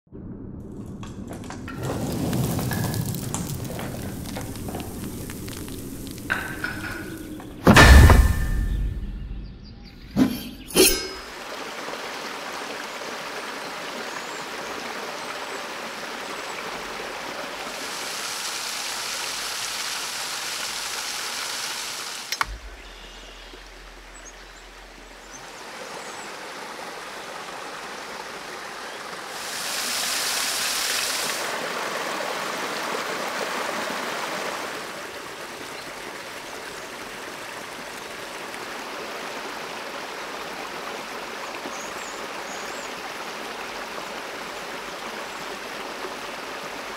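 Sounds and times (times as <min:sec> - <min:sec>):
stream running over rocks: 0:01.7 - 0:08.7, 0:10.6 - 0:46.9
sharp click: 0:22.3 - 0:22.8.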